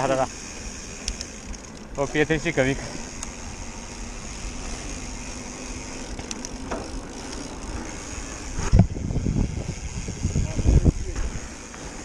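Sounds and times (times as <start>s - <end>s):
tyres humming on tarmac: 0.0s - 12.0s
tyre and wind noise: 6.6s - 12.0s
wind buffeting microphone: 8.2s - 11.5s.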